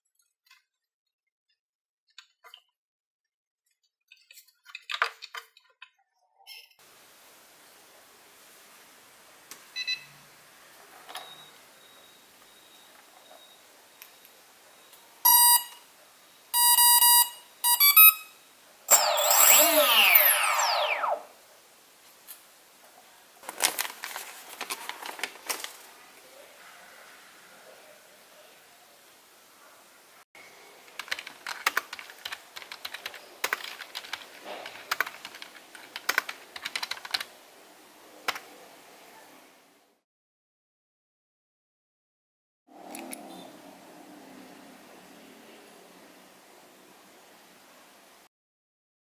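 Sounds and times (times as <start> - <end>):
motor beep tones: 16.6 - 18.3, 18.9 - 21.3
computer keyboard typing: 30.9 - 37.3.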